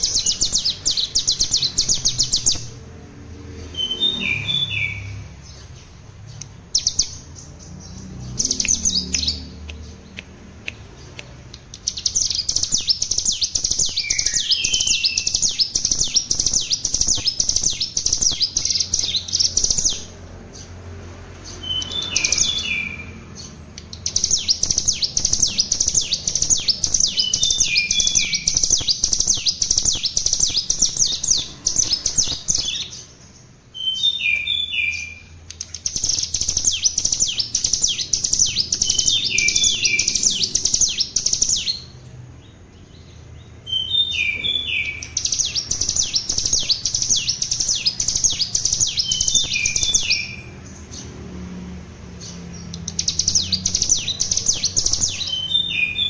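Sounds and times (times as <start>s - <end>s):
songbird rapid trill: 0.0s - 2.8s, 10.7s - 20.7s, 21.4s - 33.2s, 33.8s - 41.9s, 43.7s - 51.1s, 52.2s - 56.0s.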